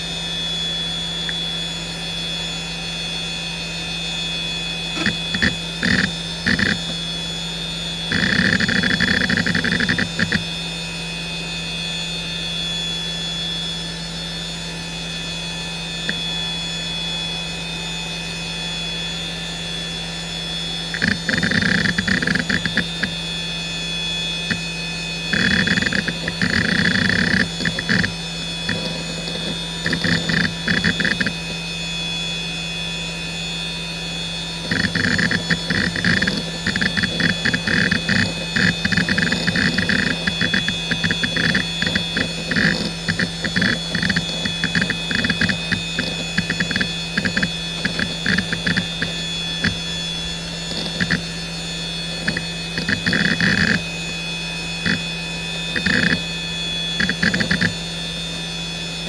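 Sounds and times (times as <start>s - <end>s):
hard drive spindle whine: 0.0s - 59.0s
hard drive seek clicking: 4.9s - 7.1s, 8.1s - 10.5s, 16.0s - 16.2s, 20.8s - 23.3s, 24.2s - 31.6s, 34.6s - 58.5s.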